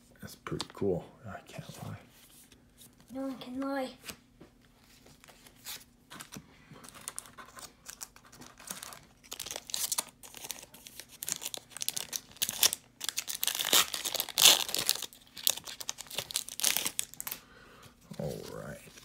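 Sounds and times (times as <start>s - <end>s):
foil wrappers crinkling: 6.2s - 17.4s.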